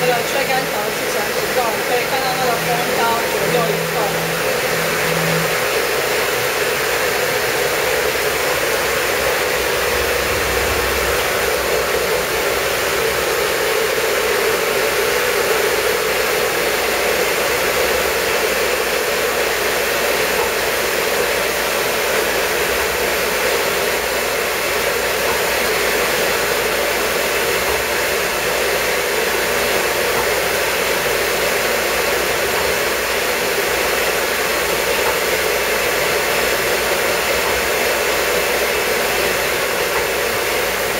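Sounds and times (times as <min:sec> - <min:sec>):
machine rushing air and hum: 0:00.0 - 0:31.5.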